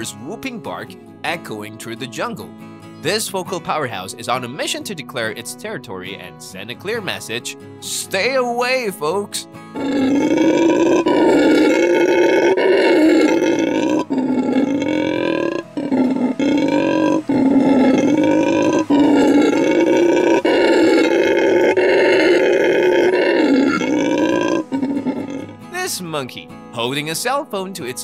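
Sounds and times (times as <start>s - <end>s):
howler monkey roaring: 9.7s - 25.7s.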